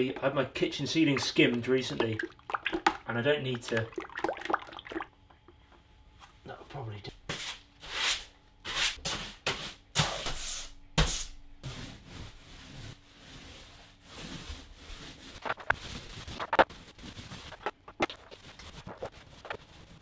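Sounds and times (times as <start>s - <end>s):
paint roller rolling on wall: 11.6s - 20.0s.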